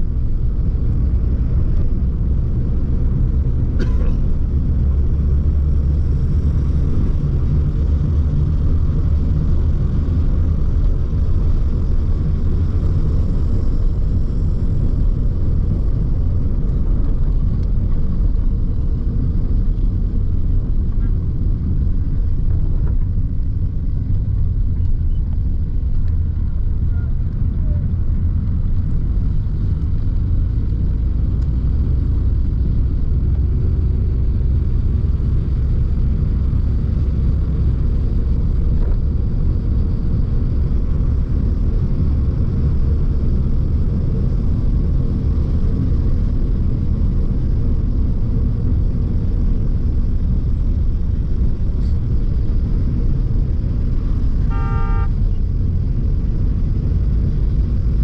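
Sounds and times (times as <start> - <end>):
vehicle road noise rumble: 0.0 - 58.0
vehicle horn toot: 54.4 - 55.3.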